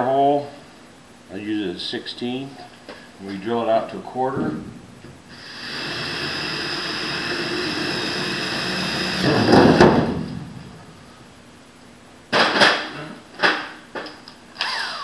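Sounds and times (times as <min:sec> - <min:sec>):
cordless drill drilling metal: 0:05.3 - 0:09.9, 0:14.6 - 0:15.0.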